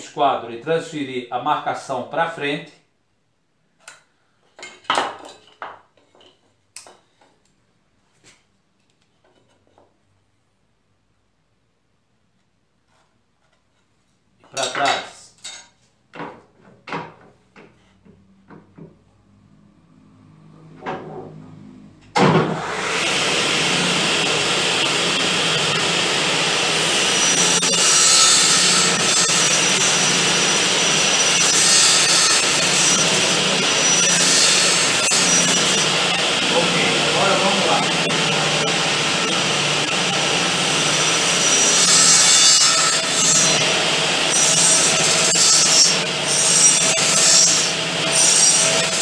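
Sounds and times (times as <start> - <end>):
wood and tools clattering: 4.4 - 7.4, 14.4 - 19.0
table saw cutting wood: 20.0 - 49.0.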